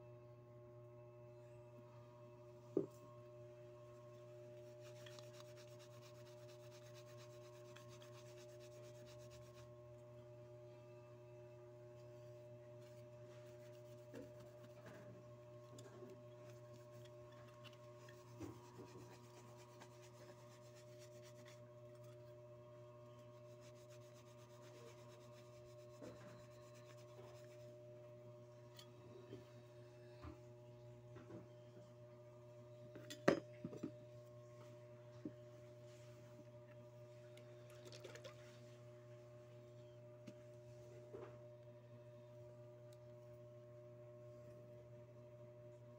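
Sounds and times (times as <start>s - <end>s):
steady low hum: 0.0s - 45.9s
cloth rubbing on metal: 4.6s - 9.7s, 12.8s - 15.0s, 16.4s - 21.6s, 23.3s - 27.7s.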